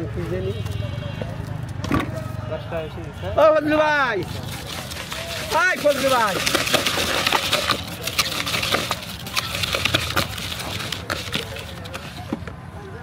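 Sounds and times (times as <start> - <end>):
puffed rice stirred in plastic bowl: 4.2 - 12.3.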